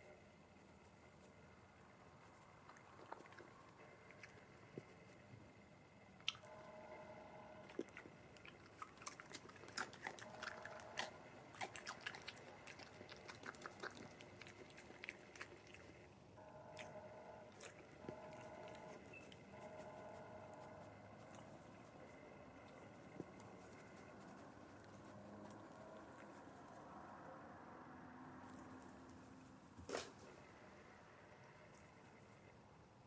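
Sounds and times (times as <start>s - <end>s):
badger chewing and crunching: 2.2s - 5.4s, 6.2s - 27.4s.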